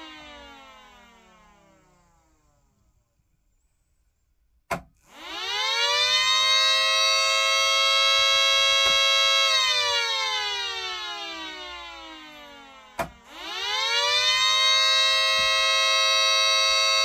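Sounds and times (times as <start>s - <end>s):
siren wailing: 0.0s - 2.4s, 5.1s - 17.0s
siren switch click: 8.8s - 9.1s, 12.3s - 17.0s.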